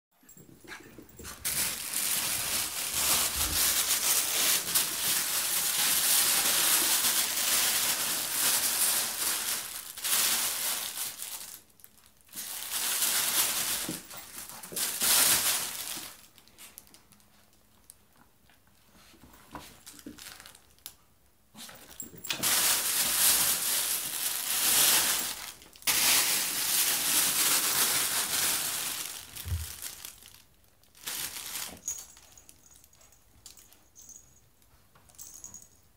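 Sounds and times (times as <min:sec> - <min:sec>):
fabric tunnel crinkling and rustling: 0:00.2 - 0:17.0, 0:21.7 - 0:32.9.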